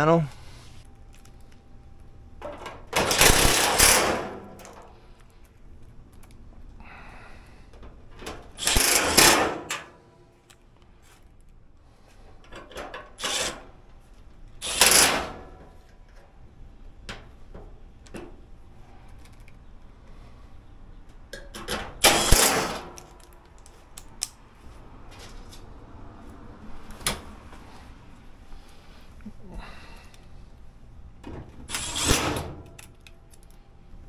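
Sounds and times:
cordless drill driving screws: 8.6 - 9.4, 14.6 - 15.2, 22.0 - 22.8, 31.7 - 32.2.

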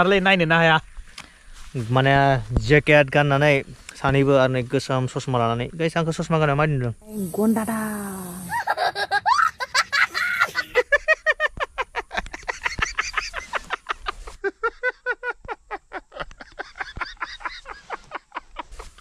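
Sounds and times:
man laughing: 8.5 - 19.0.

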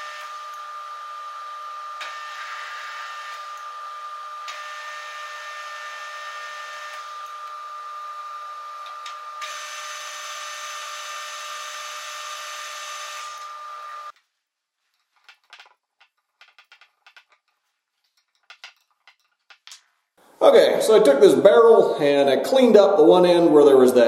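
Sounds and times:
metal lathe whining: 0.0 - 14.1.

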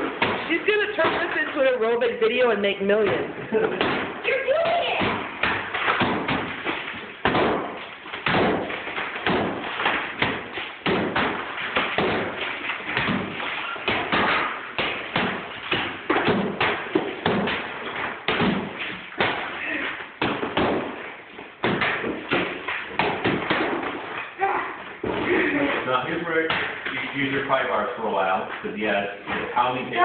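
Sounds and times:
hammers striking plaster wall: 0.0 - 2.4, 3.0 - 24.4
plaster breaking off: 3.1 - 27.9.

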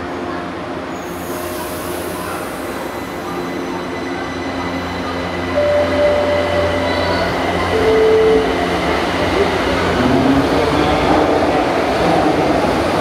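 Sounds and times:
steady high tone: 5.5 - 9.5.

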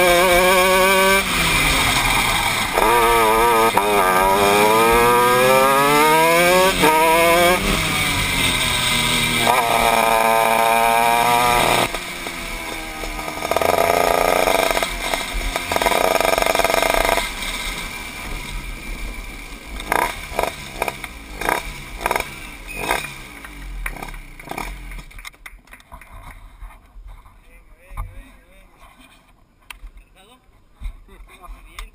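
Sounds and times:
kart engine revving: 0.0 - 25.2
sharp throttle blips: 19.8 - 25.0.

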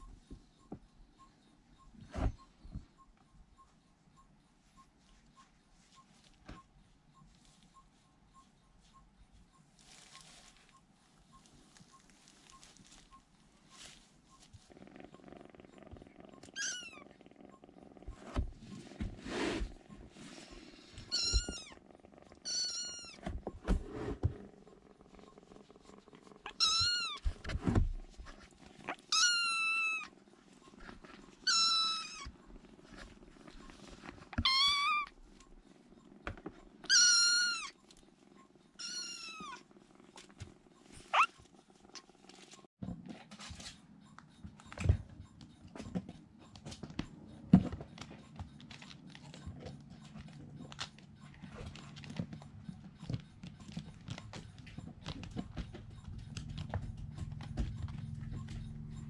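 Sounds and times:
kittens scratching at fabric: 11.4 - 16.6, 30.4 - 38.0, 46.5 - 59.0
low purr: 14.5 - 27.1, 29.9 - 42.6
kittens meowing: 16.4 - 17.2, 21.1 - 21.8, 22.4 - 23.2, 26.4 - 27.2, 28.9 - 30.1, 31.4 - 32.3, 34.4 - 35.2, 36.8 - 37.8, 38.8 - 39.6, 41.0 - 41.4.

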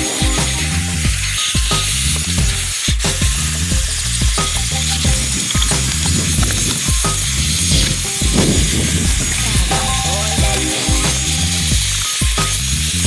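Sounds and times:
background music with plucked notes: 0.0 - 13.0.

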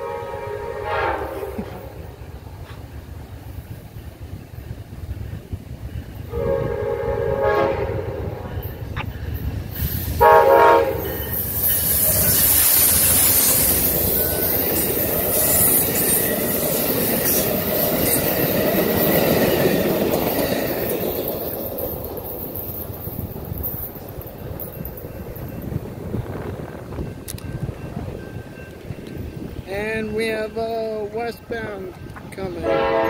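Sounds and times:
locomotive horn blasts: 0.0 - 2.0, 6.3 - 8.7, 10.2 - 11.2, 32.6 - 33.0
steel wheels on rails: 0.0 - 33.0
train passing with diesel engine: 0.0 - 33.0.

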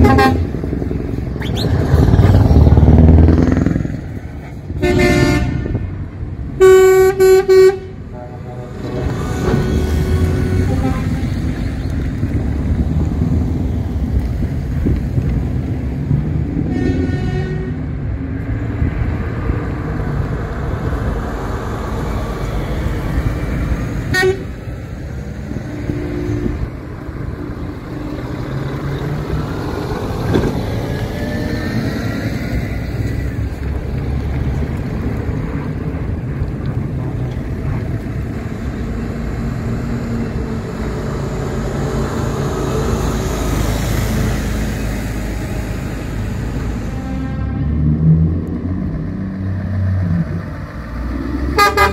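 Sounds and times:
horn toots: 0.0 - 0.5, 4.8 - 5.8, 6.6 - 11.4, 16.6 - 17.8, 24.1 - 24.5, 51.5 - 51.9
truck diesel engines running: 0.0 - 51.9.

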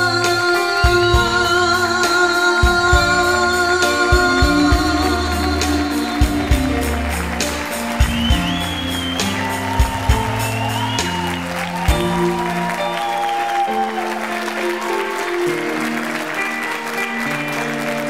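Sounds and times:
woman singing into a microphone: 0.0 - 7.1
instrumental accompaniment: 0.0 - 18.0.

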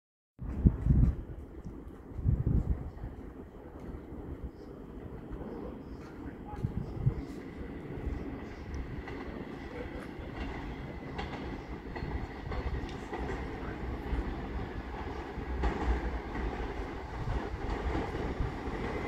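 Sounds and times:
subway train rumbling: 0.4 - 19.0
wheels clicking over rail joints: 8.6 - 19.0.

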